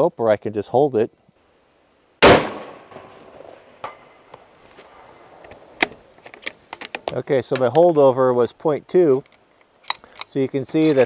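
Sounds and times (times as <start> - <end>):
rifle shot echoing: 2.2 - 4.3.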